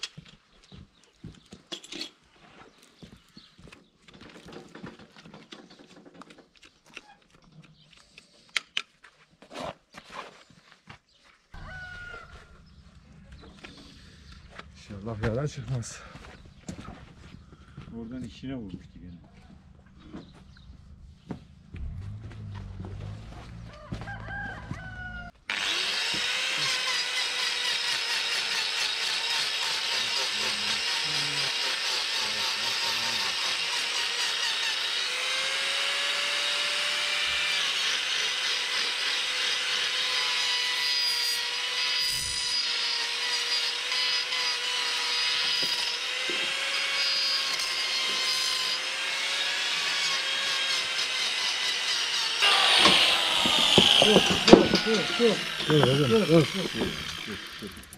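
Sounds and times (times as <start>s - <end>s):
rooster crowing: 11.6s - 12.6s, 23.6s - 25.4s
angle grinder grinding hoof: 11.8s - 57.9s
low hum: 18.8s - 24.2s
scattered knocks: 52.8s - 55.9s
cow lowing: 54.0s - 57.9s.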